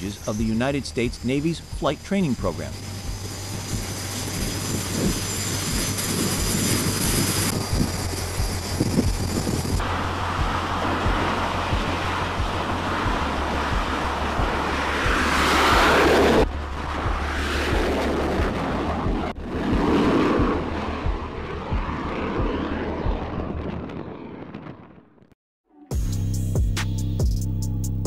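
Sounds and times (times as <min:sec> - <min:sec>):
jet engine roar: 0:00.0 - 0:25.4
wind on microphone: 0:03.0 - 0:25.1.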